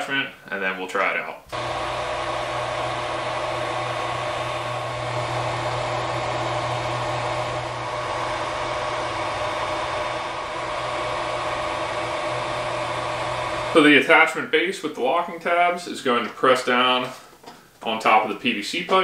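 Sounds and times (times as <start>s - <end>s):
printer cooling fans whirring: 1.5s - 14.0s.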